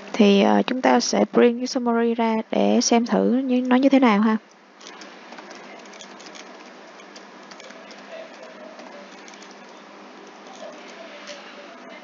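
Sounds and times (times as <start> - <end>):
keyboard keys clicking: 4.8 - 11.0.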